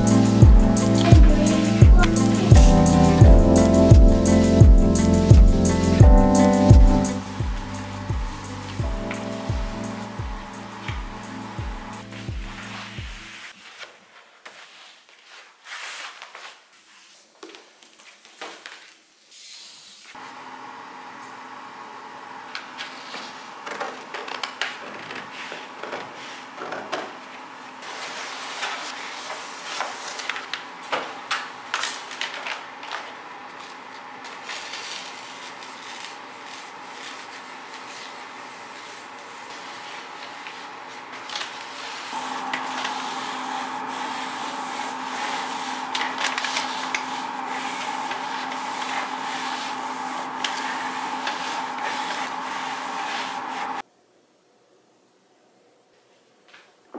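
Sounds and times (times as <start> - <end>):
steady hum: 0.0 - 13.4, 42.1 - 53.8
wallpaper crinkling and scraping: 8.4 - 20.2, 22.6 - 53.8.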